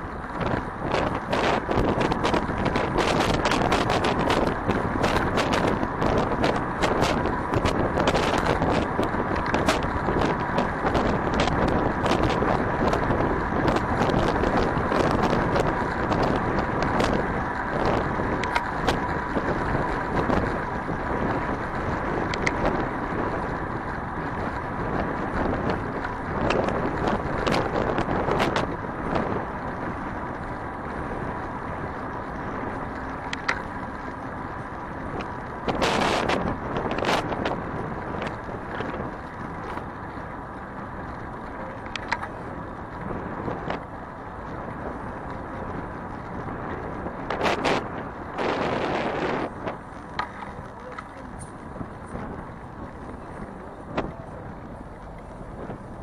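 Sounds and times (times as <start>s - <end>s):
road and traffic noise: 0.0s - 56.0s
wind rushing over microphone: 0.0s - 56.0s
sharp clicks and knocks: 33.3s - 33.7s, 50.0s - 51.2s.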